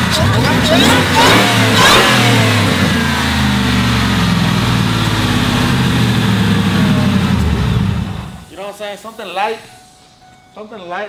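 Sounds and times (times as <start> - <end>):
supercharger whine: 0.0 - 8.5
truck engine revving: 0.0 - 8.5.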